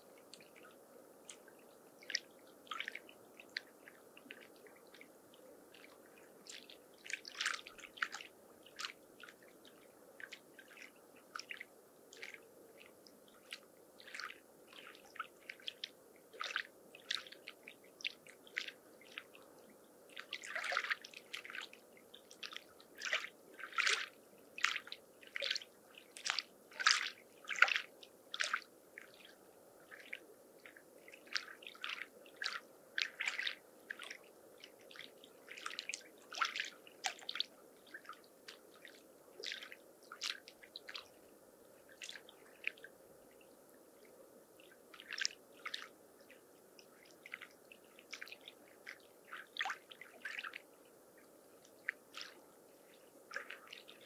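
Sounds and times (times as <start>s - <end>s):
low steady water wash: 0.0s - 54.0s
small waves splashing at shore: 5.7s - 19.3s, 20.1s - 41.2s, 51.6s - 54.0s.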